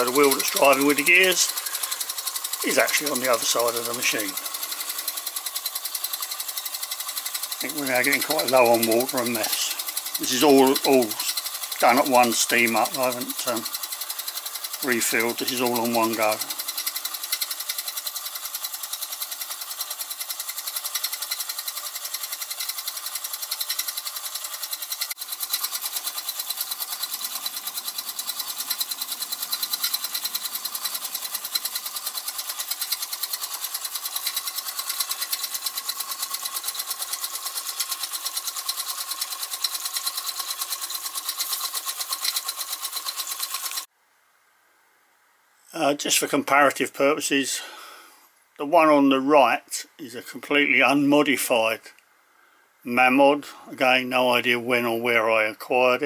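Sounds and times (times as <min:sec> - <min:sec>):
toy steam engine chuffing: 0:00.0 - 0:43.9.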